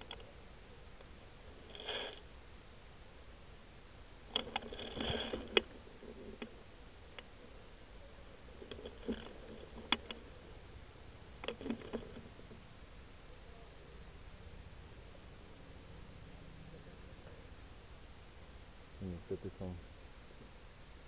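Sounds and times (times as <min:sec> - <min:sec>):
crunchy rustle: 0:00.0 - 0:02.4, 0:04.2 - 0:07.7, 0:08.4 - 0:10.7, 0:11.3 - 0:12.7.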